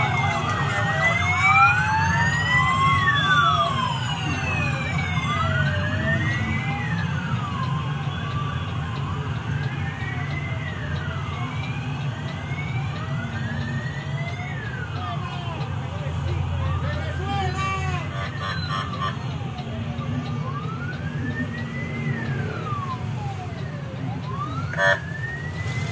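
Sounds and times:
motorcycle and bus engines rumbling: 0.0s - 25.9s
police sirens wailing: 0.0s - 25.9s.

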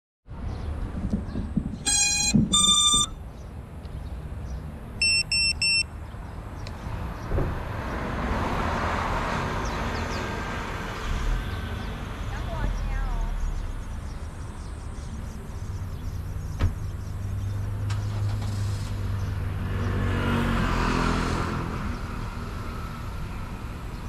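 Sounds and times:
electronic beeps: 1.8s - 3.2s, 5.0s - 5.9s.

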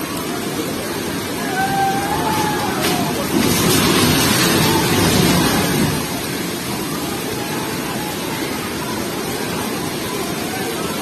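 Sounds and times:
heavy rain: 0.0s - 11.0s
river water rushing: 0.0s - 11.0s
building collapsing rumble: 1.4s - 7.9s.

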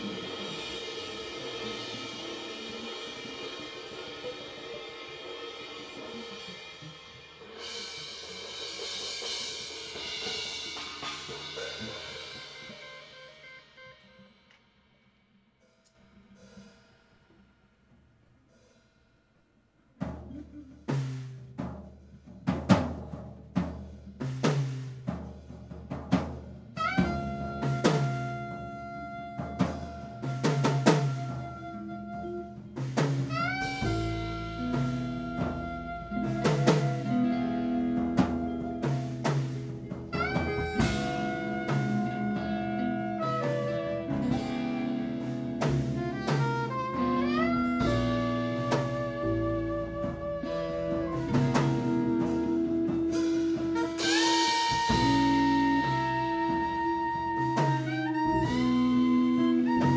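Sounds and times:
low bass notes: 0.0s - 2.0s, 26.7s - 53.7s
drum kit playing: 0.0s - 14.6s, 19.9s - 59.9s
instrumental jazz band: 0.0s - 14.7s, 20.0s - 59.9s
lead instrument holding a note: 26.8s - 39.4s, 40.1s - 45.2s.

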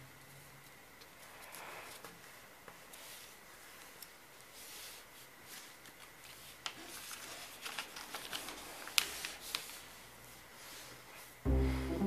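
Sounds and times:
paper rustling and crinkling: 2.8s - 11.4s.

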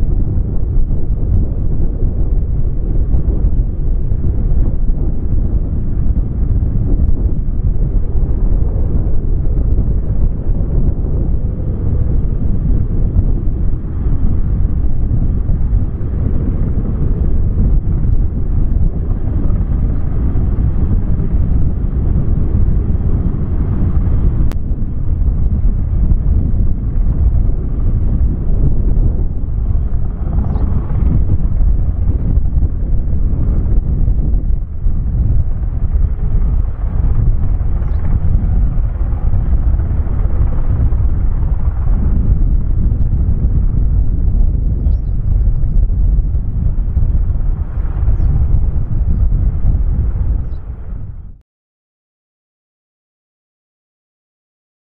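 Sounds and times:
turboprop engines rumbling: 0.0s - 51.4s.

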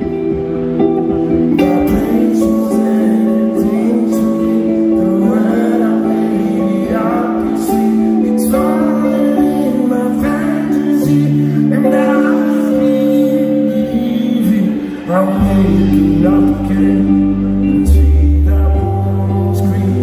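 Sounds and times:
electric guitar playing chords: 0.0s - 20.0s
person singing: 0.0s - 20.0s.

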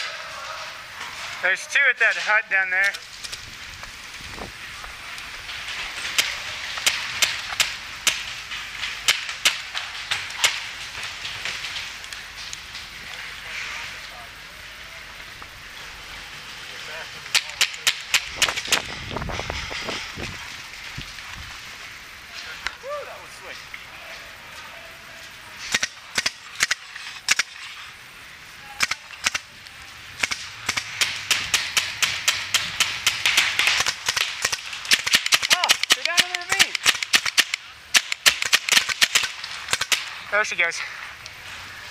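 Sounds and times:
paintball markers firing: 25.7s - 27.5s, 28.8s - 29.5s, 30.2s - 40.1s.

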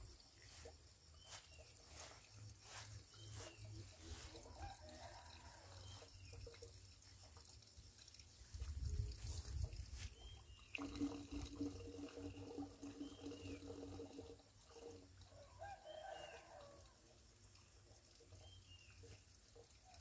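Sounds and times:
small birds chirping: 0.0s - 4.4s, 9.2s - 10.8s
rooster crowing: 4.5s - 5.8s, 15.4s - 16.9s.

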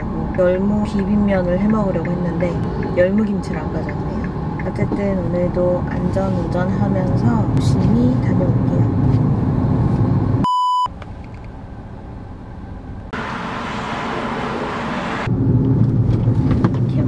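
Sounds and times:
car cabin road rumble: 0.0s - 17.0s
electronic beep: 10.4s - 10.9s.

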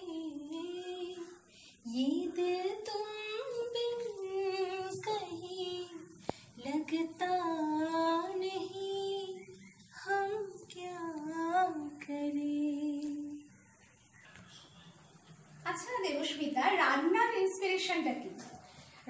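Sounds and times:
woman singing unaccompanied: 0.0s - 13.8s.

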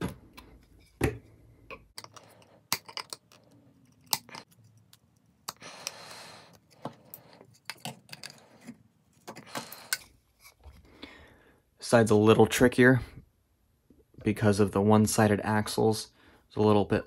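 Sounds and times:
plastic pieces snapping: 2.0s - 6.0s.

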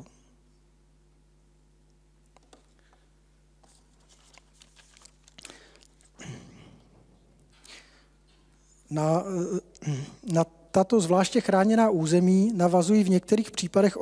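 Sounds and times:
steady low hum: 0.0s - 14.0s
paper rustling and crinkling: 3.6s - 6.2s.

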